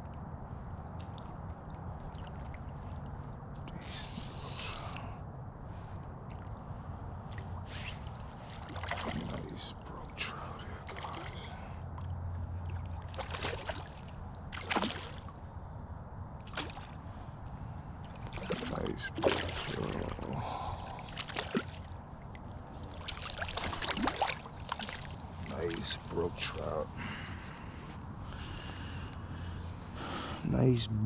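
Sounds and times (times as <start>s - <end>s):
steady low rumble: 0.0s - 31.0s
fish splashing at water surface: 7.7s - 9.5s, 10.8s - 11.5s, 12.8s - 15.3s, 16.4s - 17.0s, 18.1s - 21.9s, 22.8s - 25.9s.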